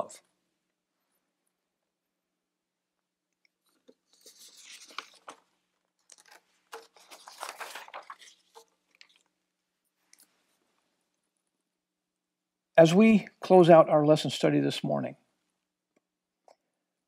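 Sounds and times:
paper rustling and crinkling: 3.6s - 9.4s.

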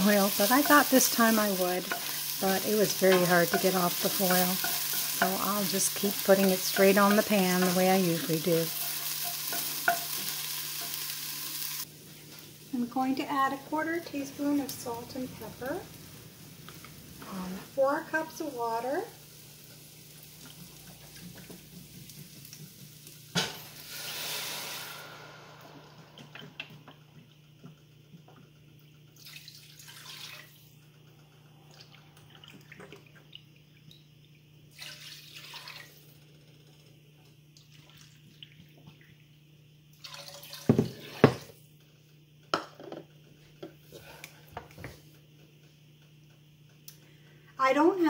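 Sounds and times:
low steady hum: 11.8s - 23.8s
water pouring: 29.2s - 30.8s, 34.7s - 36.2s, 37.6s - 38.8s, 39.9s - 41.2s.

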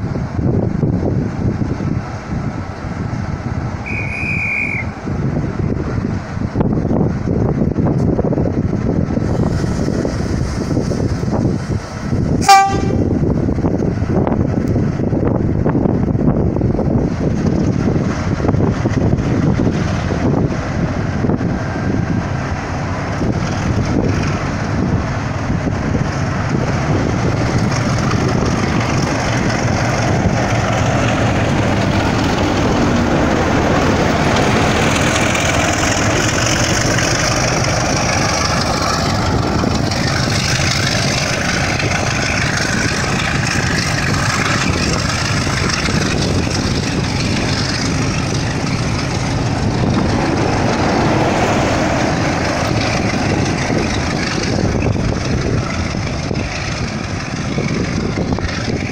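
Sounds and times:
diesel locomotive engine: 0.0s - 58.9s
train coaches rumbling: 0.0s - 58.9s
high whine: 9.4s - 14.8s, 19.2s - 58.9s.

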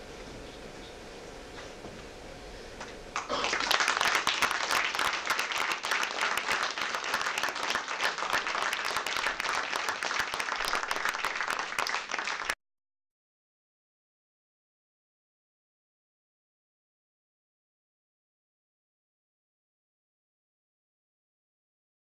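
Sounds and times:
audience applauding: 3.2s - 12.6s.

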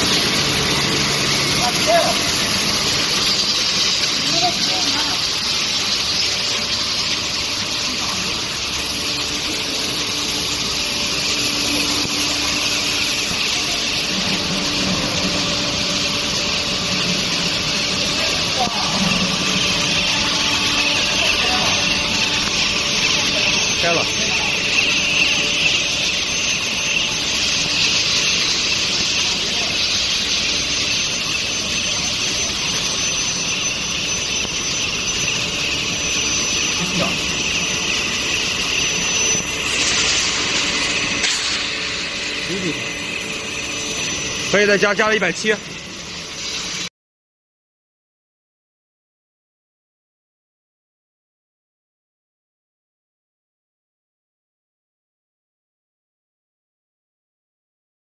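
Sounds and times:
machinery din: 0.0s - 46.8s
faint high whine: 0.0s - 46.9s
industrial rush and hiss: 0.0s - 46.9s.

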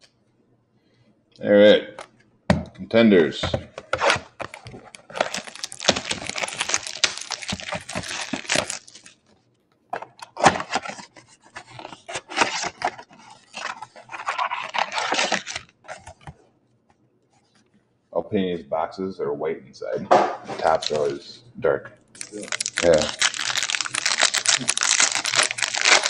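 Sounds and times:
cardboard tearing and crackling: 3.9s - 9.2s, 10.3s - 16.2s, 22.2s - 26.0s.

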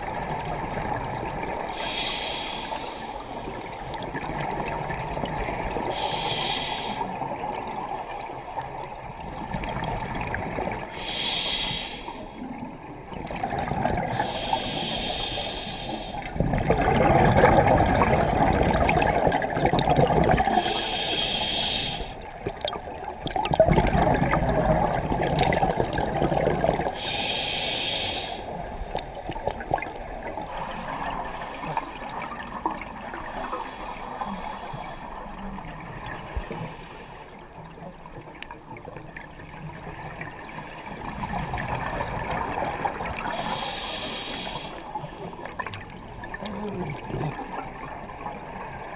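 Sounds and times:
hissing regulator inhales: 1.7s - 4.0s, 5.9s - 7.2s, 10.9s - 12.5s, 14.1s - 16.3s, 20.5s - 22.3s, 26.9s - 28.6s, 30.5s - 32.0s, 33.0s - 35.4s, 36.2s - 37.4s, 43.3s - 45.5s
bubbling exhales underwater: 13.2s - 14.4s, 16.3s - 20.8s, 22.4s - 27.0s.

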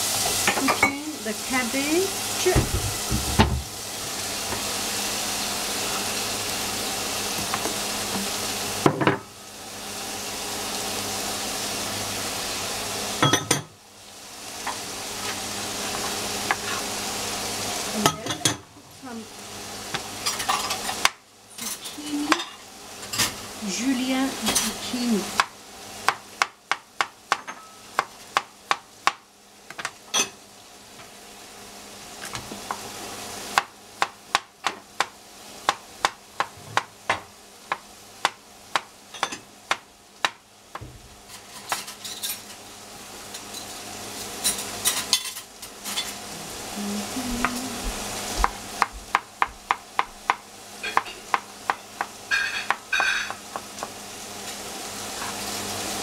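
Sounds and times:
cabbage sizzling in oil: 0.0s - 56.0s
knife chopping on cutting board: 33.6s - 41.0s.

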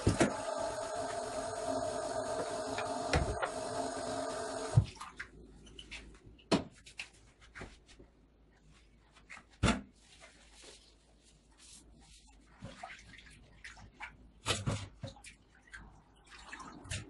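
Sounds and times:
steady running noise: 0.0s - 4.9s.

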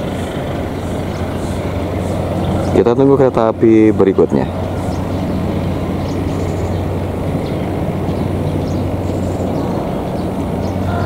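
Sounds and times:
diesel locomotive engine droning: 0.0s - 11.0s.

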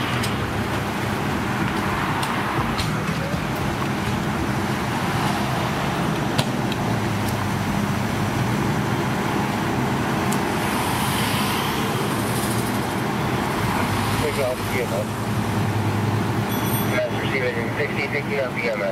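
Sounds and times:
diesel engine low hum: 0.0s - 16.5s
car passing by: 10.5s - 16.8s.

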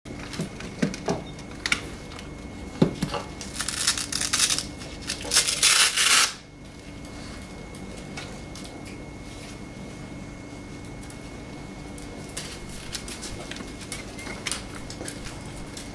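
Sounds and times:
faint hum: 0.1s - 15.9s.

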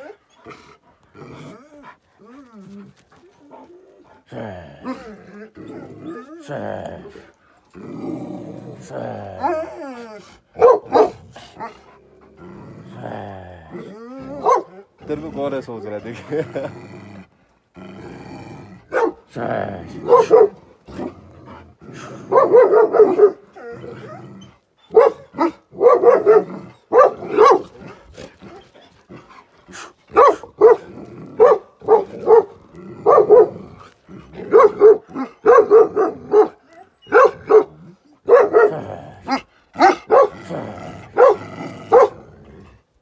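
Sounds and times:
dogs barking: 10.6s - 11.8s, 14.4s - 14.8s, 18.9s - 19.3s, 20.0s - 20.7s, 22.3s - 23.5s, 24.9s - 27.8s, 29.7s - 33.6s, 34.4s - 40.5s, 41.1s - 42.2s.

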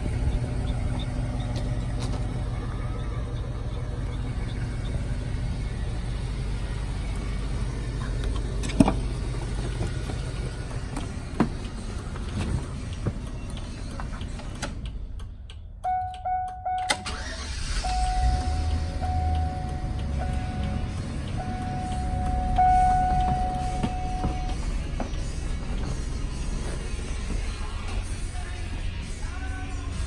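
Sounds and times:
warning chime beeping: 15.8s - 24.8s.

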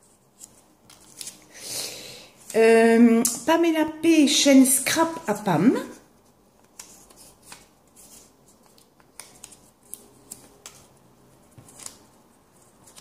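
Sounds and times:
paper being folded: 0.0s - 1.5s, 6.2s - 13.0s.

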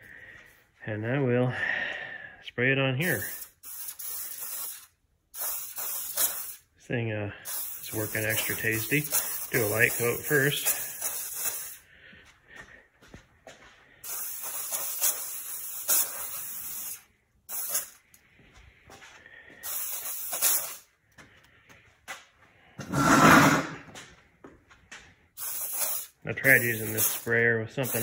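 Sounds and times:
aerosol sprayer hissing: 3.1s - 6.6s, 7.4s - 11.8s, 14.0s - 18.0s, 19.6s - 20.9s, 25.4s - 28.0s.

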